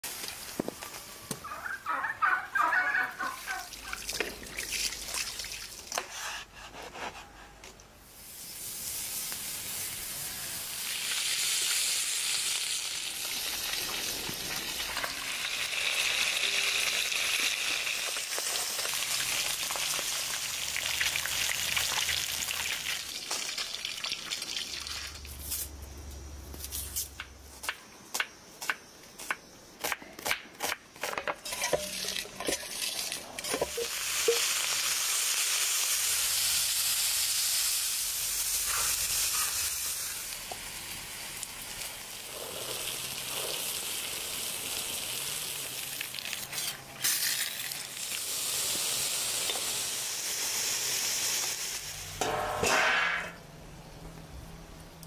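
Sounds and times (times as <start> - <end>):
fish sizzling in hot oil: 8.1 - 25.3, 31.4 - 52.2.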